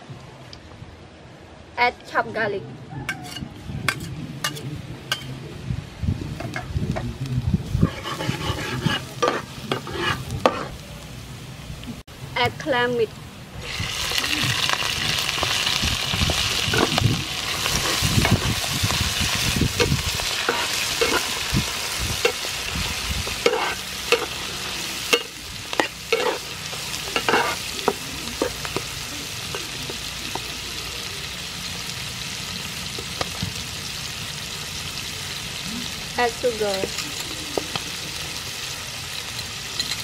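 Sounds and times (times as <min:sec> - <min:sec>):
metal spatula scraping a pan: 0:03.2 - 0:05.3, 0:07.8 - 0:10.8, 0:16.6 - 0:22.6, 0:23.2 - 0:28.9
clams sizzling in oil: 0:07.7 - 0:40.0.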